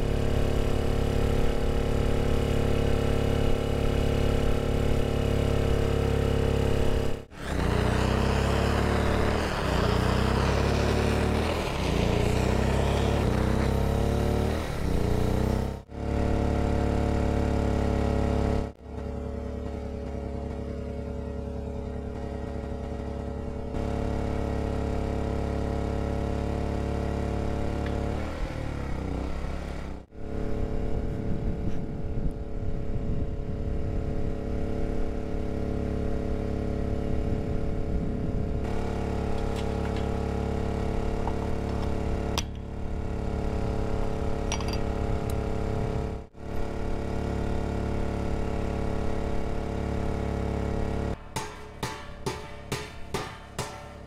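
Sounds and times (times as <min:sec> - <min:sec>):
droning background music chords: 0:18.8 - 0:23.8.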